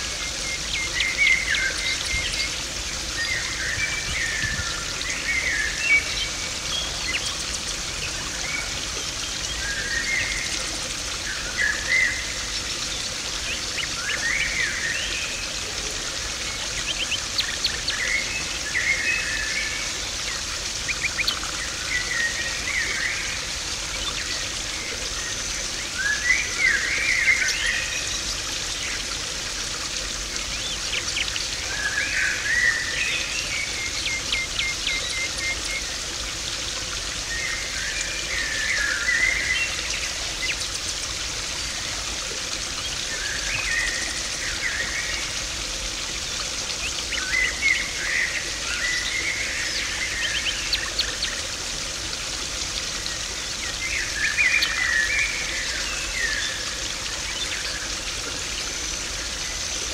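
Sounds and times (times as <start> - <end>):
small birds chirping: 0.0 - 36.2
pond water splashing and trickling: 0.0 - 59.9.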